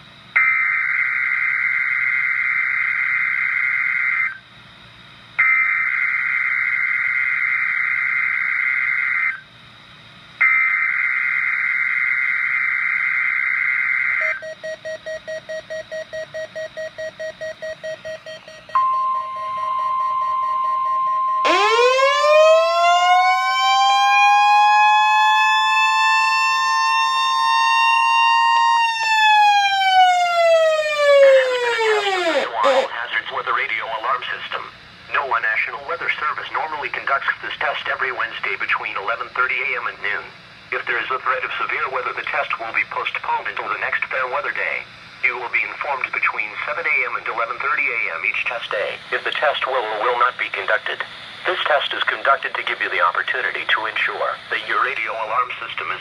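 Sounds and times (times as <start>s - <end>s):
electronic siren alarm: 0.3s - 33.2s
digital alert header screech: 31.9s - 33.0s.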